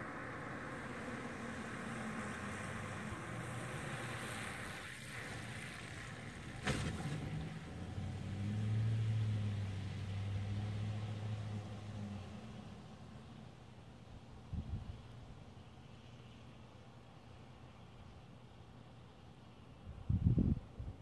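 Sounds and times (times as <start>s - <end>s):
vehicle engine hum: 0.0s - 17.9s.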